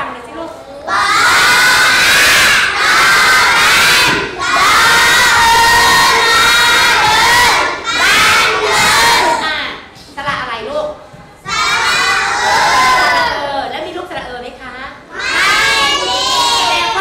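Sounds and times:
children chanting in unison: 0:00.8 - 0:09.4, 0:11.4 - 0:13.4, 0:15.1 - 0:17.0.

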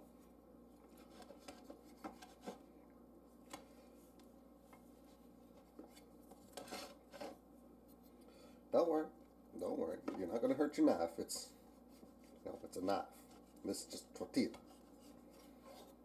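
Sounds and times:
knife scraping on metal plate: 0:06.5 - 0:07.4.

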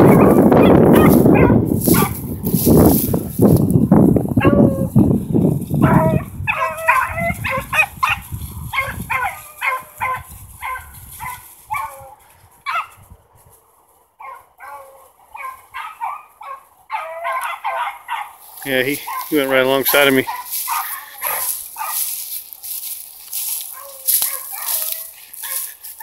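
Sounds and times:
beagles baying: 0:00.0 - 0:02.2, 0:04.3 - 0:05.0, 0:05.8 - 0:26.0.

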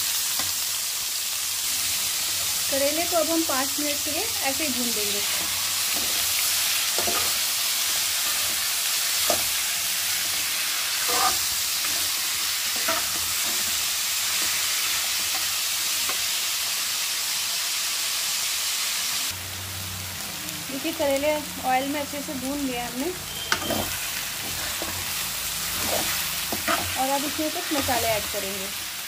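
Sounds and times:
vegetables frying in oil: 0:00.0 - 0:29.0
metal spatula scraping pan: 0:05.3 - 0:09.6, 0:10.2 - 0:13.8, 0:23.3 - 0:27.0.

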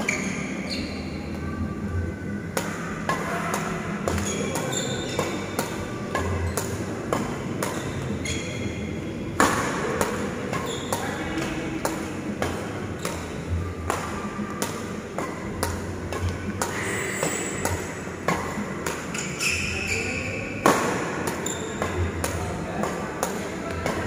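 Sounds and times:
shoes squeaking on court floor: 0:00.0 - 0:01.2, 0:04.1 - 0:06.8, 0:07.6 - 0:09.0, 0:10.4 - 0:11.5, 0:16.2 - 0:22.4
rackets hitting shuttlecock: 0:02.5 - 0:08.5, 0:09.4 - 0:20.0, 0:20.6 - 0:24.0.

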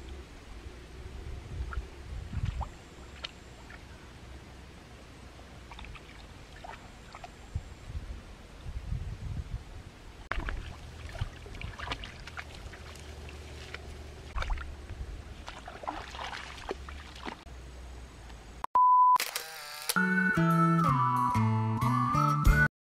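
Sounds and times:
stream water splashing: 0:01.7 - 0:03.9, 0:05.5 - 0:07.5, 0:10.2 - 0:17.5.

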